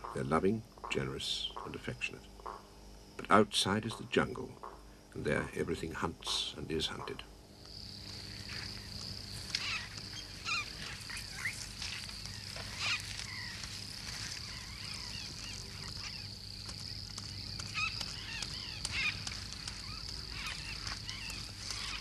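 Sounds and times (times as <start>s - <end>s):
insects droning: 0.0s - 22.0s
bird chirps and calls: 9.5s - 16.3s.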